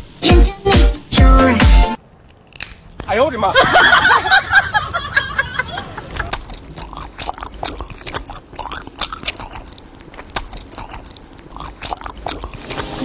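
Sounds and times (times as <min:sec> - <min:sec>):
man chewing food: 0:06.2 - 0:13.0.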